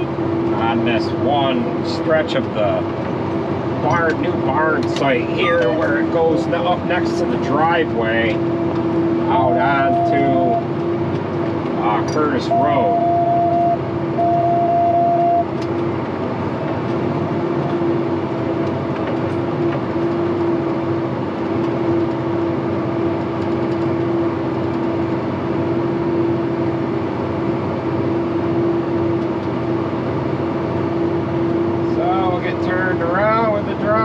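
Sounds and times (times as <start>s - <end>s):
tractor engine drone: 0.0s - 34.0s
electronic alarm beeps: 9.3s - 10.7s, 12.4s - 15.5s.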